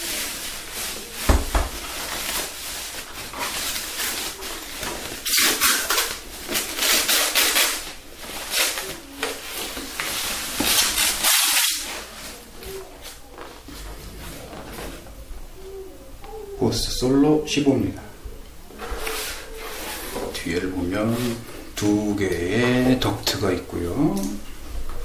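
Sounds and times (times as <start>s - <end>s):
plastic wrapping rustling and crinkling: 0.0s - 15.9s, 18.7s - 25.0s.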